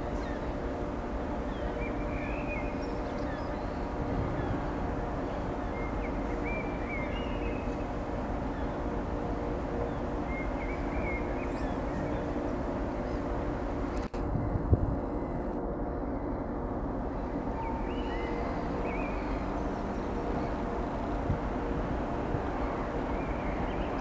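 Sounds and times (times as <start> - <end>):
ship machinery hum: 0.0 - 24.0.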